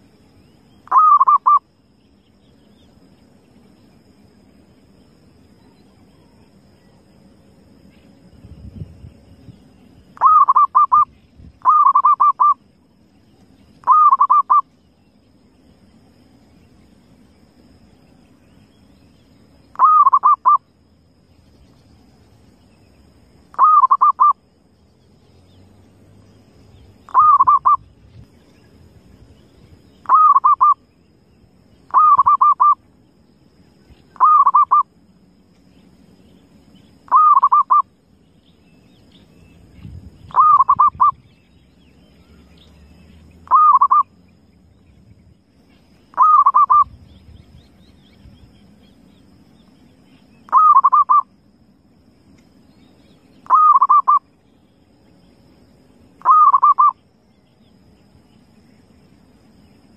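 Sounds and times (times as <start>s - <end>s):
dove cooing: 0.9s - 1.6s, 10.2s - 12.6s, 13.8s - 14.6s, 19.8s - 20.6s, 23.6s - 24.4s, 27.1s - 27.8s, 30.0s - 30.8s, 31.9s - 32.8s, 34.2s - 34.8s, 37.1s - 37.8s, 40.3s - 41.2s, 43.4s - 44.1s, 46.1s - 46.9s, 50.5s - 51.2s, 53.5s - 54.2s, 56.2s - 56.9s.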